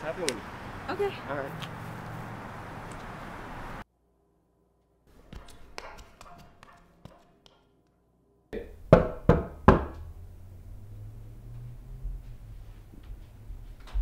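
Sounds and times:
loud knocks on door: 8.9s - 10.0s.

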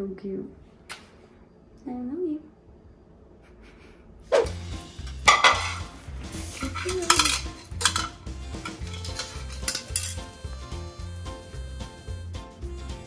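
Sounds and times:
background music with a beat: 4.5s - 13.0s
ceramic bowl scraping on tile: 5.3s - 10.2s.

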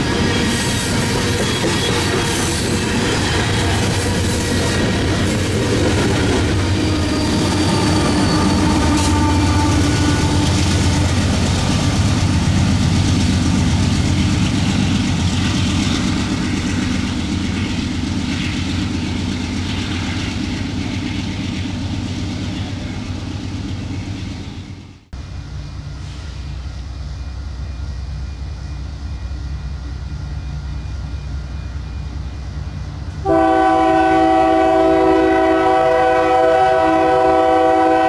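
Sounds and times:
train wheel clatter: 0.0s - 24.9s
locomotive engine running: 0.0s - 34.9s
train wagons rumbling past: 0.0s - 38.0s.

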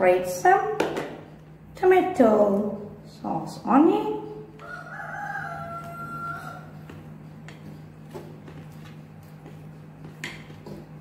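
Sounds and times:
rooster crowing: 4.6s - 7.0s.

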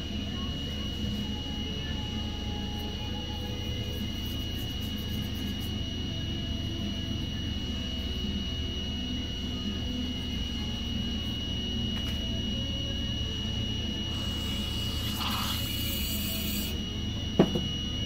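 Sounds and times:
high whine: 0.0s - 18.0s
steady low hum: 0.0s - 18.0s
hiss: 14.3s - 16.7s.

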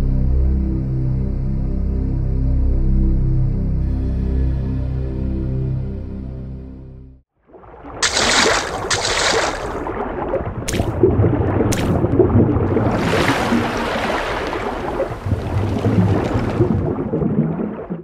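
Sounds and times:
water bubbling and sloshing: 7.3s - 18.0s
bright splashes: 7.6s - 12.1s, 12.8s - 16.9s.

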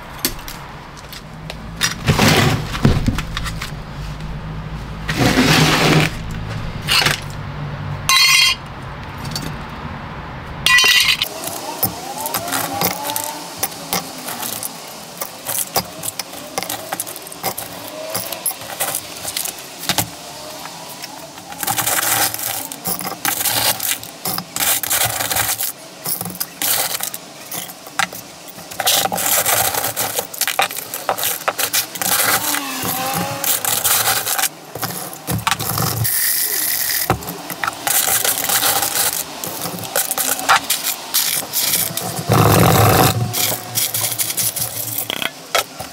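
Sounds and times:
rasping scraping: 1.8s - 7.3s, 10.7s - 45.9s
metal pieces clinking: 8.1s - 8.6s, 10.7s - 20.2s, 20.8s - 45.9s.

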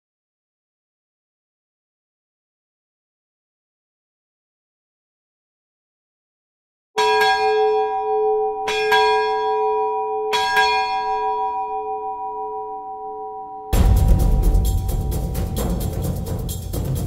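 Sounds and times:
ship's bell ringing: 7.0s - 14.0s.

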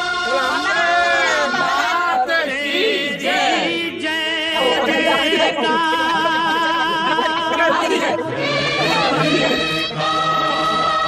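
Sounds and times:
voices singing together: 0.0s - 11.0s.

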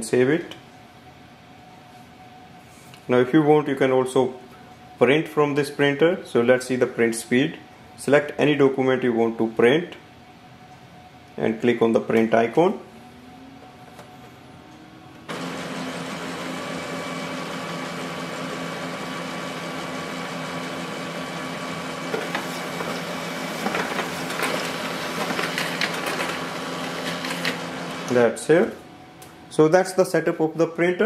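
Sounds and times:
printer motor and fan drone: 0.0s - 31.0s
printer paper feed clicks and rattles: 15.3s - 28.2s.

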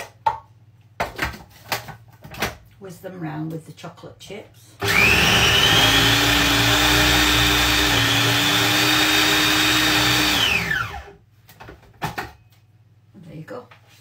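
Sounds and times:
food processor motor whining: 4.8s - 11.2s.

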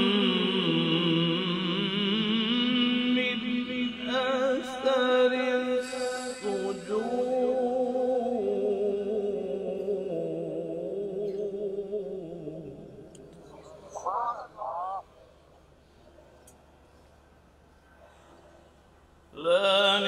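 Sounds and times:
man chanting melodically: 0.0s - 15.1s.

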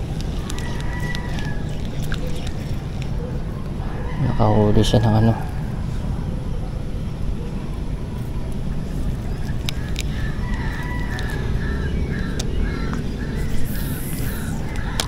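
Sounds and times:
steady low rumble: 4.7s - 15.0s.

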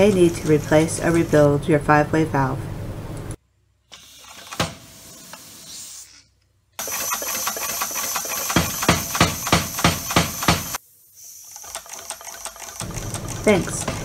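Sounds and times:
compressed air hissing: 4.0s - 6.3s, 7.3s - 11.8s.

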